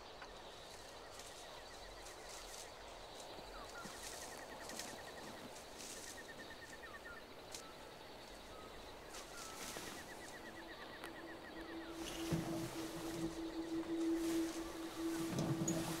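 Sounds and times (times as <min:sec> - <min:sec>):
birds chirping: 0:00.0 - 0:16.0
low steady musical note: 0:10.3 - 0:16.0.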